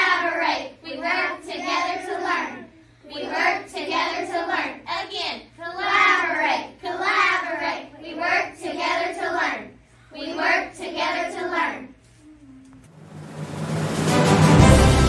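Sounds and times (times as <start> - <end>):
children singing a chant: 0.0 - 4.9, 5.6 - 11.9.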